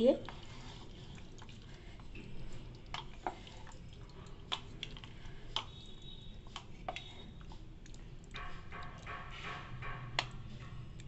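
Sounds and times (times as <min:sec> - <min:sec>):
wooden spatula tapping pot: 0:08.3 - 0:10.8.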